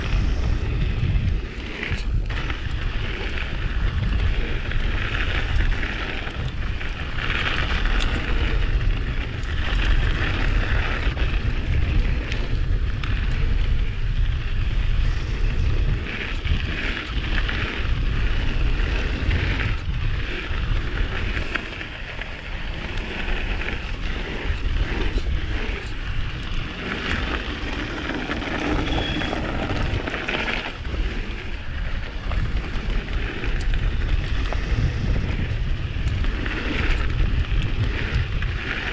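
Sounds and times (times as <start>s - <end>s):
bike tyre and trail noise: 0.0s - 38.9s
wind buffeting microphone: 0.0s - 38.9s.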